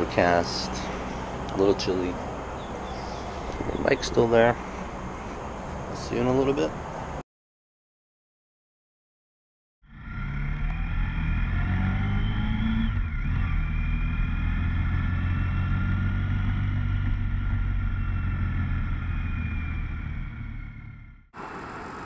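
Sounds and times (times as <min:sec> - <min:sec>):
motorcycle engine running: 0:09.9 - 0:21.2.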